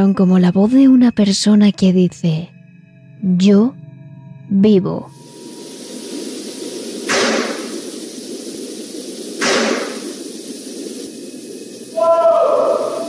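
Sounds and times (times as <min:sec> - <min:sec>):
recording hiss: 0:04.6 - 0:13.0.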